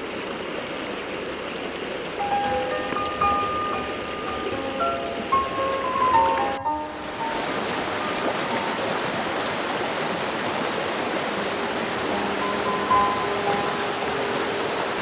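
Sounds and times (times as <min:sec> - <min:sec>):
creek rushing over rocks: 0:00.0 - 0:15.0
faint music: 0:02.2 - 0:08.8, 0:11.8 - 0:15.0.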